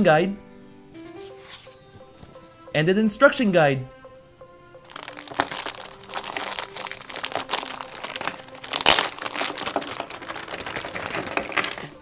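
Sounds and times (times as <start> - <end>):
plastic bag crinkling: 4.9 - 12.0.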